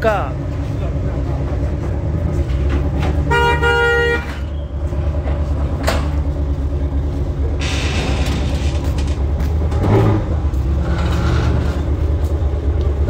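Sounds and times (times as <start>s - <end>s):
car engines rumbling: 0.0s - 13.0s
car horn honking: 3.2s - 4.6s.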